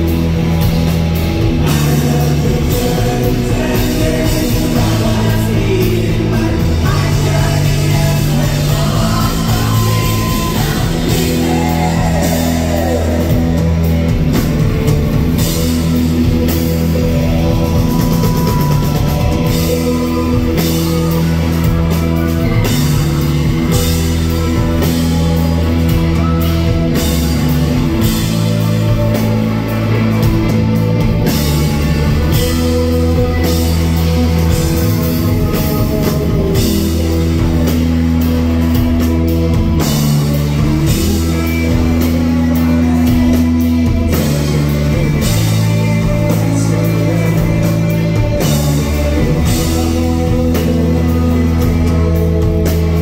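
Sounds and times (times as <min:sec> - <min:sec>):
drum kit beat: 0:00.0 - 0:53.0
rock band playing live: 0:00.0 - 0:53.0.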